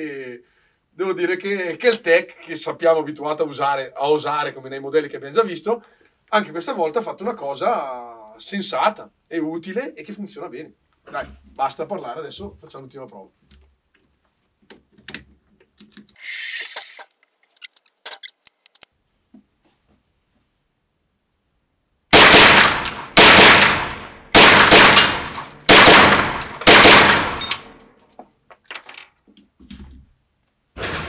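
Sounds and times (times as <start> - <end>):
gunshots ringing indoors: 22.1 - 27.8, 30.8 - 31.0.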